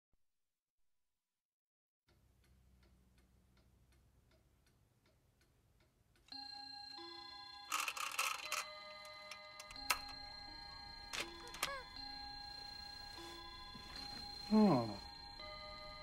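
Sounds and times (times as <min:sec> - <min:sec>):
sustained music tones: 0:06.4 - 0:16.0.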